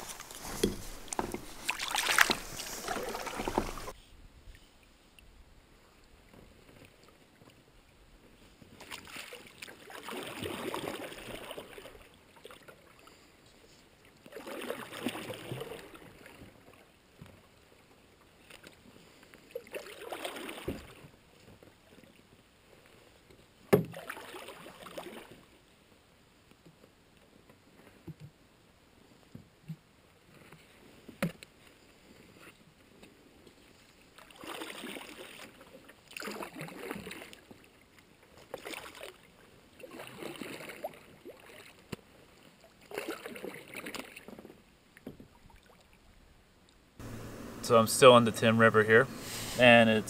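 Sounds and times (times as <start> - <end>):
paddle knocking: 0.0 - 4.0
paddle splashing in water: 0.0 - 4.0, 8.7 - 13.0, 14.2 - 16.8, 18.4 - 22.1, 23.7 - 25.5, 34.0 - 46.0.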